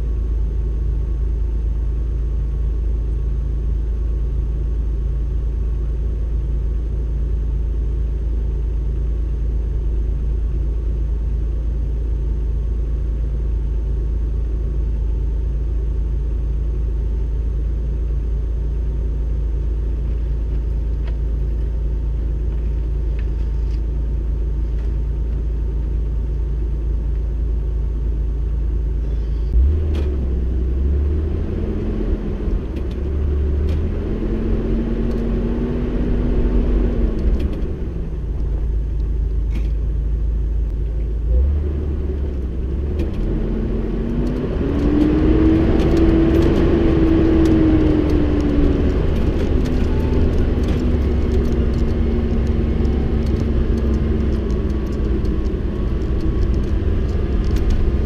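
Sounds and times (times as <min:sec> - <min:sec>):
off-road vehicle engine rumbling: 0:00.0 - 0:58.0
clicks and rattles: 0:45.8 - 0:58.0.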